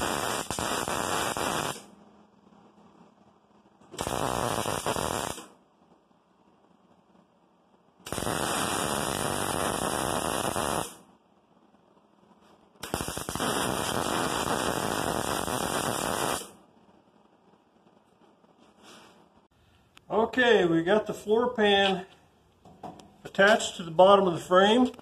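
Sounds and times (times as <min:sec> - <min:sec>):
welder arc crackling: 0:00.0 - 0:02.0, 0:02.6 - 0:07.3, 0:08.0 - 0:18.7.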